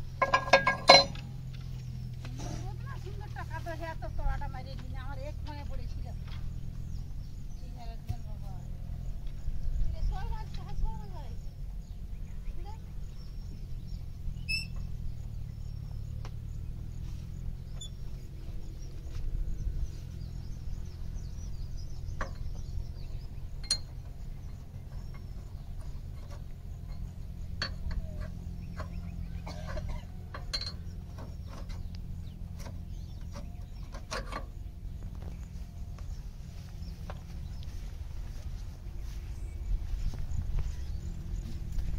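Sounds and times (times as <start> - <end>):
low steady rumble: 0.0 - 41.9
metal hook and strap clinking: 0.2 - 1.3, 23.6 - 24.0, 26.2 - 31.0
faint bird chirps: 5.2 - 41.9.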